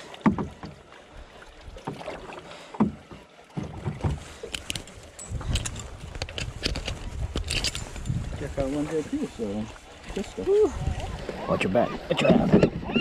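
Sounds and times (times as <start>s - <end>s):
water against boat hull: 0.0s - 13.0s.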